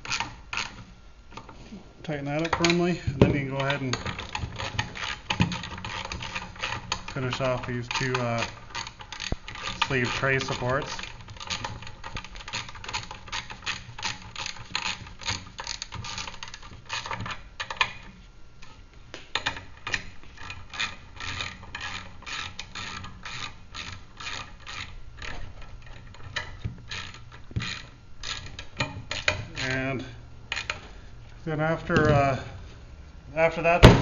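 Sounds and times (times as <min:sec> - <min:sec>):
ratchet wrench clicking: 0:03.6 - 0:18.0, 0:19.4 - 0:30.8.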